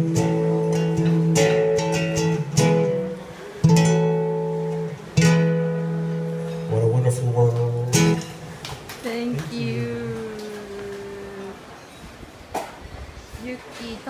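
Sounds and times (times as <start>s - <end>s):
acoustic guitar chords strummed: 0.0s - 10.4s.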